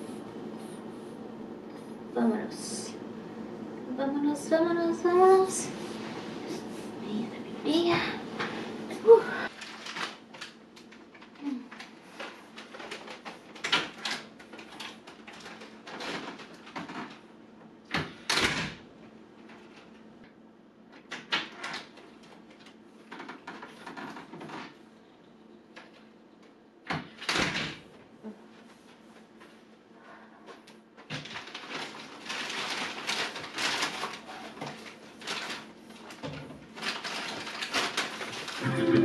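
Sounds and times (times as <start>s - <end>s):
steady low hum: 0.0s - 9.7s.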